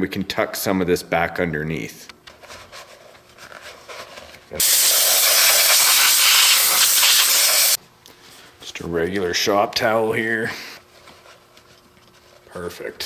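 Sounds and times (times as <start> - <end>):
faint handling sounds: 2.1 - 4.6, 7.8 - 13.0
spray can hissing: 4.6 - 7.8.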